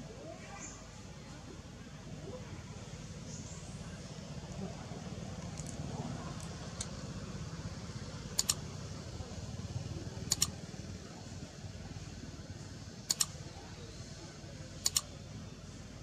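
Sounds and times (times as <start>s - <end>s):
computer mouse double clicks: 8.4s - 8.6s, 10.3s - 10.5s, 13.1s - 13.3s, 14.8s - 15.0s.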